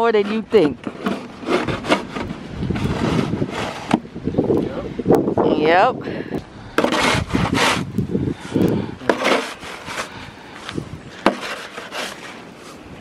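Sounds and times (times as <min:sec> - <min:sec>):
snow shovel scraping on brick: 0:00.0 - 0:04.0, 0:06.8 - 0:07.9, 0:09.0 - 0:10.2, 0:11.1 - 0:12.9
shovel knocking on pavers: 0:11.2 - 0:12.1.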